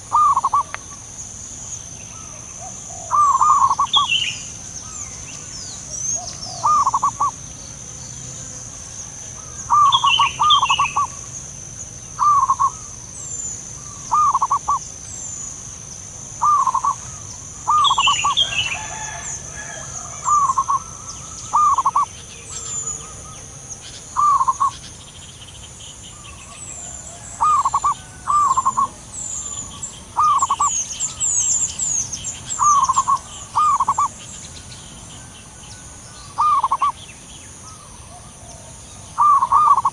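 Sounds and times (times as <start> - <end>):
doves cooing: 0.0 - 1.1, 2.1 - 7.4, 8.4 - 11.4, 12.2 - 13.0, 13.7 - 14.9, 16.3 - 24.9, 26.2 - 34.2, 35.3 - 37.0, 37.7 - 39.9
small birds chirping: 0.0 - 39.9.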